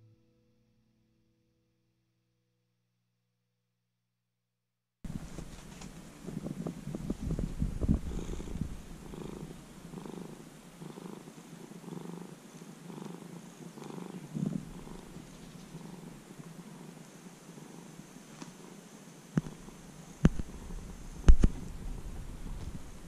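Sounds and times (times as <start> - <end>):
cat purring: 5.1 - 23.0
low thumps: 14.3 - 15.8, 19.4 - 23.0.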